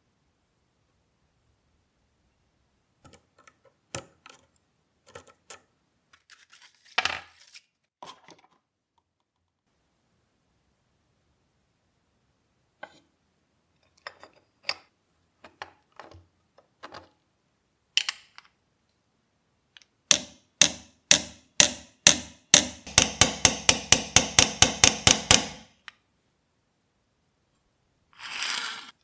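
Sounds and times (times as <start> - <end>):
small hammer striking metal punch: 20.1 - 25.7.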